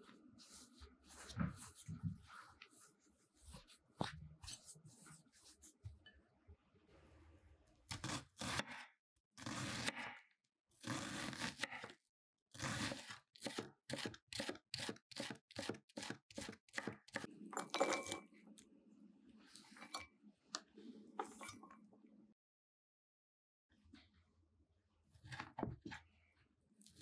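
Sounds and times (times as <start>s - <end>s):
knife chopping onion on wooden board: 12.5s - 17.3s.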